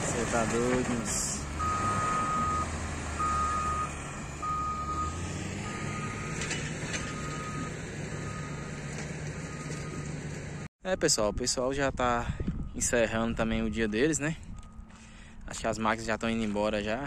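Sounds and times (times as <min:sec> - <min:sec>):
diesel engine rumble: 0:00.0 - 0:17.0
reversing alarm beeping: 0:01.6 - 0:08.8, 0:09.4 - 0:10.1, 0:10.9 - 0:11.8.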